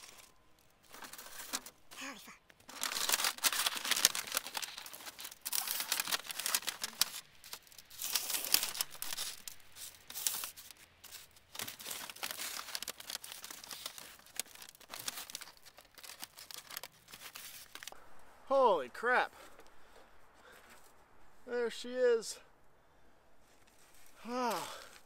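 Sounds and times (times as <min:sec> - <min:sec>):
metal pipe scraping and crinkling: 0:00.0 - 0:18.0, 0:23.4 - 0:24.2.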